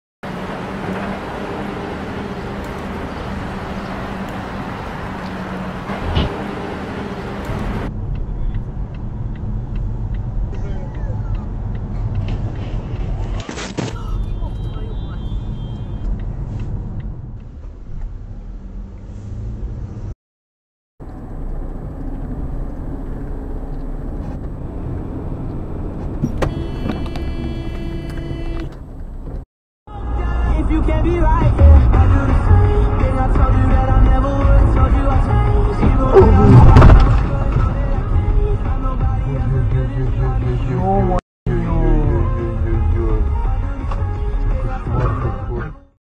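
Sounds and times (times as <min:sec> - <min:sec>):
dull vehicle drone: 0:00.2 - 0:13.5, 0:14.1 - 0:20.2, 0:21.0 - 0:46.0
car engine and tyre rumble: 0:00.2 - 0:20.2, 0:21.0 - 0:45.9
road traffic noise: 0:00.2 - 0:20.2, 0:21.0 - 0:45.6
loud thump: 0:36.1 - 0:37.8.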